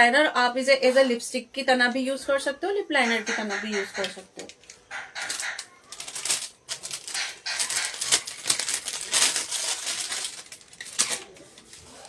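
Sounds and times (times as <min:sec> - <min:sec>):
plastic packs rustling and clicking: 0:03.6 - 0:12.0.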